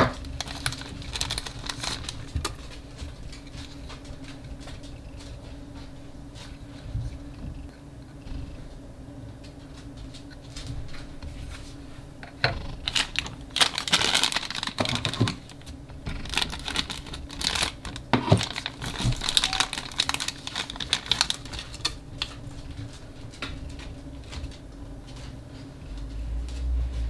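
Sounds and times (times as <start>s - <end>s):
scissors cutting plastic: 0.0s - 2.7s, 12.8s - 22.3s
plastic pouch crinkling: 0.1s - 4.3s, 12.8s - 22.4s.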